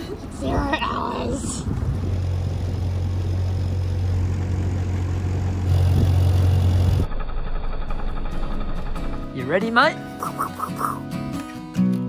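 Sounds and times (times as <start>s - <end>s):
outboard motor running: 1.5s - 11.0s.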